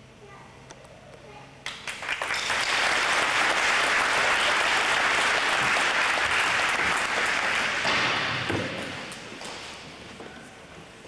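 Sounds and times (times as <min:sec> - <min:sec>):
audience applauding: 0:01.7 - 0:09.1.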